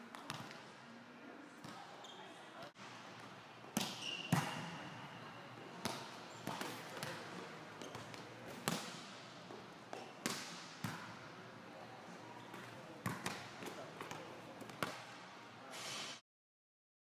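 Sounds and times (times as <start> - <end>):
volleyball hits echoing in a hall: 1.6 - 15.6
shoe squeak: 3.9 - 4.6.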